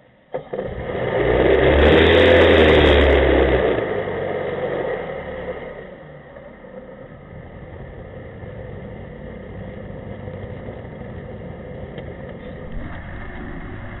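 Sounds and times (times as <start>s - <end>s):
jet boat engine running: 12.6s - 14.0s.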